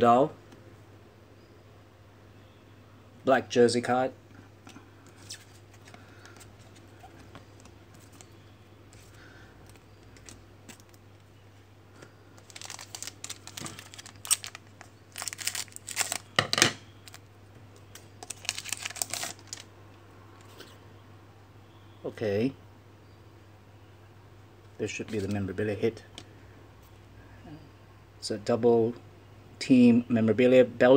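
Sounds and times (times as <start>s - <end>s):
crackling bursts: 11.9s - 16.4s, 17.0s - 19.7s
foil wrapper crinkling and tearing: 12.4s - 17.2s, 17.9s - 19.7s.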